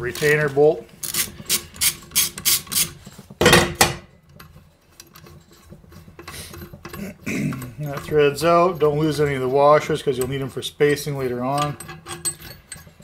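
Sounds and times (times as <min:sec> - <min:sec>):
metal handling: 0:00.0 - 0:13.0
ratchet wrench clicking: 0:01.0 - 0:03.0
metal clank: 0:02.8 - 0:13.0.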